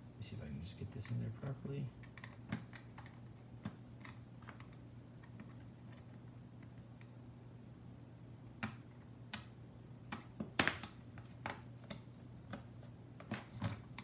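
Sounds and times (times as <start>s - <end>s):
low steady hum: 0.0s - 14.0s
plastic parts clicking and tapping: 0.9s - 7.1s, 10.1s - 14.0s.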